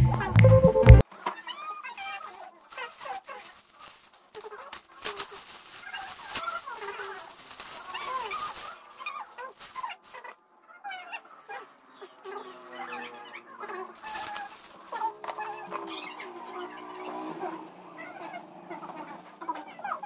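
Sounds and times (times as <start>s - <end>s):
cellophane crinkling: 1.1s - 10.4s, 12.0s - 16.1s.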